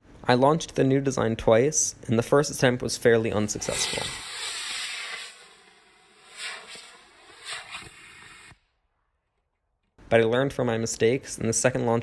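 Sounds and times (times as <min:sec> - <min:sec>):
rocket motor exhaust hiss: 0:03.4 - 0:08.7.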